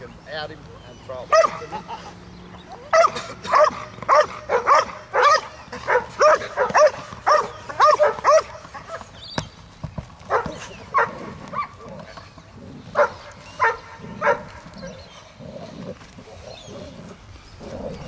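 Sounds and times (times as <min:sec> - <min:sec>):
dog barking: 0:01.3 - 0:01.7, 0:02.9 - 0:09.0, 0:10.3 - 0:11.8, 0:13.0 - 0:15.0.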